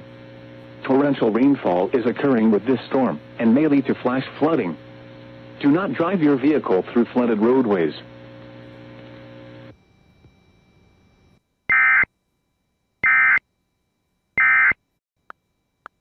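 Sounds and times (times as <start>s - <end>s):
low steady hum: 0.0s - 16.0s
warbling data tone bursts: 11.7s - 12.1s, 13.0s - 13.4s, 14.4s - 14.8s.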